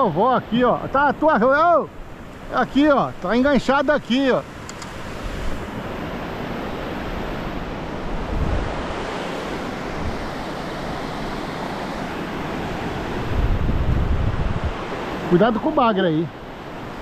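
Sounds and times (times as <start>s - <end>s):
ocean surf on beach: 0.0s - 17.0s
wind buffeting microphone: 2.0s - 15.4s.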